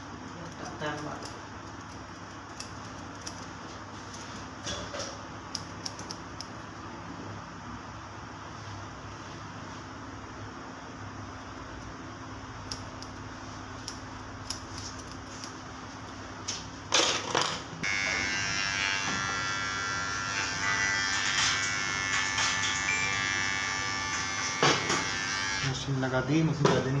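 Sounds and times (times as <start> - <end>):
electric hair clipper buzzing: 17.8 - 25.8.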